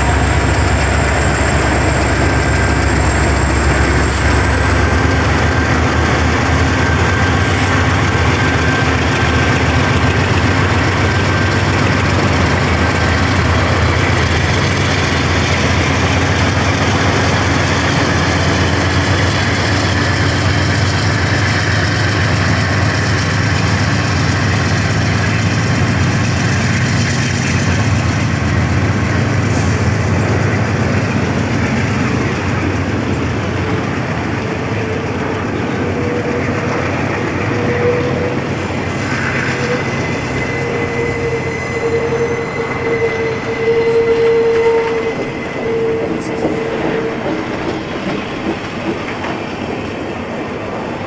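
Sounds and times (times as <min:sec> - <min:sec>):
diesel locomotive engines: 0:00.0 - 0:51.0
freight train rolling by: 0:00.0 - 0:51.0
thin wheel squeal: 0:35.7 - 0:48.9.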